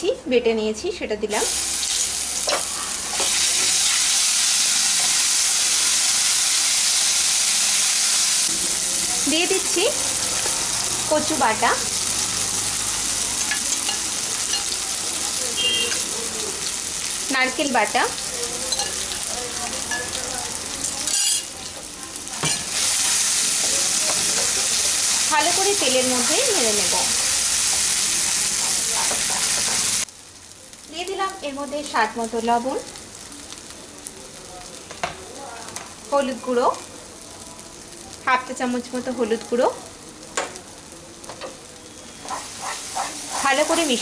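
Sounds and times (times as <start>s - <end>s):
paste sizzling in hot oil: 1.3s - 44.0s
wooden spatula stirring: 42.3s - 43.5s.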